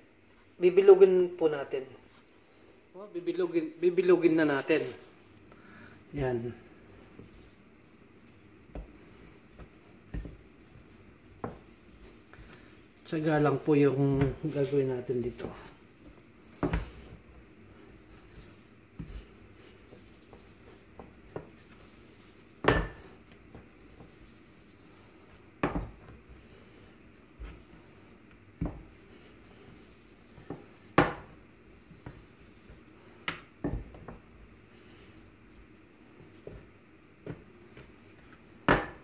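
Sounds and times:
rolling pin knocking on wooden board: 9.6 - 10.5, 25.6 - 26.2, 30.4 - 31.4, 32.0 - 34.3, 38.6 - 39.0.

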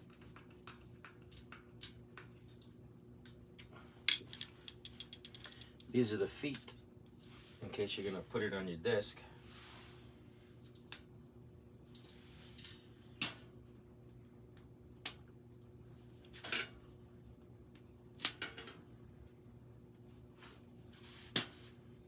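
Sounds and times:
light clicks and knocks of metal: 0.0 - 7.2
faint steady hum: 0.0 - 22.0.

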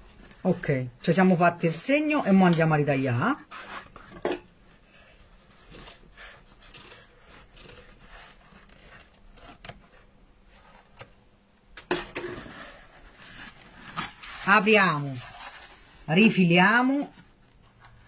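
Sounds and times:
fabric rubbing: 3.1 - 10.9.

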